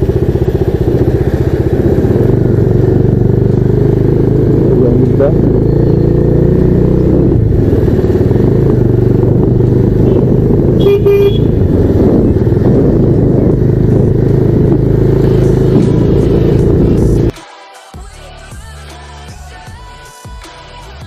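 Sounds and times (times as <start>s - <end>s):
motorcycle engine running: 0.0s - 17.3s
wind rush on microphone: 7.2s - 17.3s
horn beeps: 10.1s - 11.8s.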